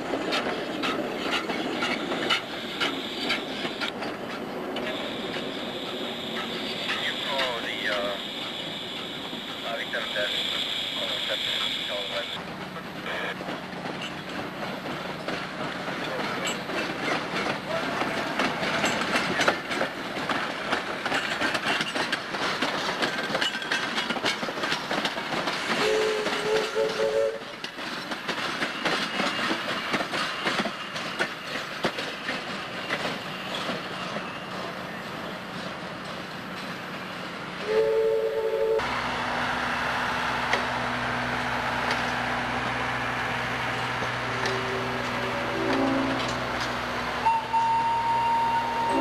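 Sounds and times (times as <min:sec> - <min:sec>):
wheels clicking over rail joints: 0:00.0 - 0:05.5, 0:12.4 - 0:36.8, 0:43.6 - 0:47.6
steam locomotive running past: 0:00.0 - 0:49.0
steam whistle blast: 0:25.8 - 0:27.4, 0:37.6 - 0:38.9, 0:47.2 - 0:49.0.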